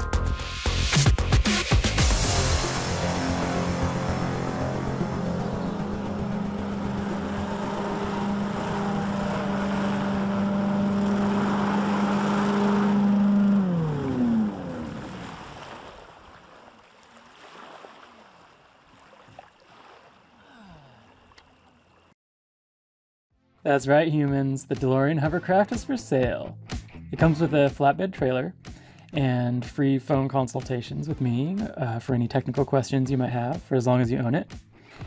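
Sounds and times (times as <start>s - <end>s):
hovercraft engine and fans running: 2.2s - 16.4s.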